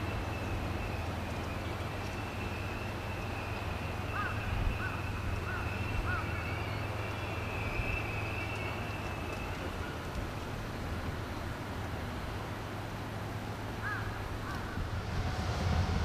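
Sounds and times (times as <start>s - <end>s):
bird calling: 0.0s - 10.2s, 13.8s - 14.8s.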